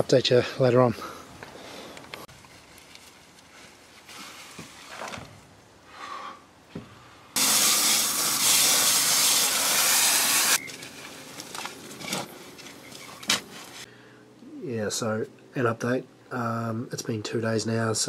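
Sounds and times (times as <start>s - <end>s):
handling knocks and rustles: 2.0s - 5.5s, 10.6s - 13.9s
water spraying from hose: 7.4s - 10.6s.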